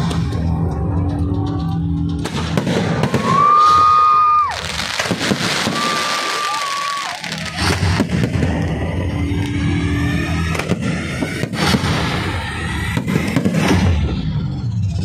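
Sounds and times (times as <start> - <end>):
fireworks crackling and popping: 0.0 - 14.9
firework hiss: 2.6 - 9.6, 10.3 - 14.1
firework whistles: 2.6 - 14.2.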